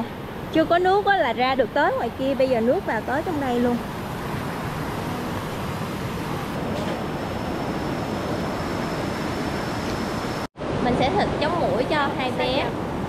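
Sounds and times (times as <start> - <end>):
river water rushing over rapids: 0.0 - 13.0.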